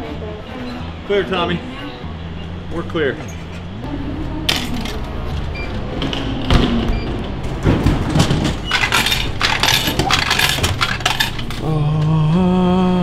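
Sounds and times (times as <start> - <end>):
coins clinking: 4.5 - 5.1, 8.6 - 11.6.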